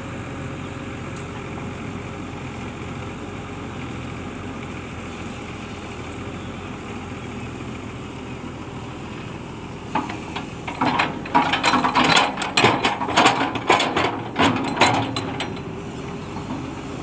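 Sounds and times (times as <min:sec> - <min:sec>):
excavator engine running: 0:00.0 - 0:17.0
excavator bucket scraping soil and stones: 0:09.8 - 0:17.0.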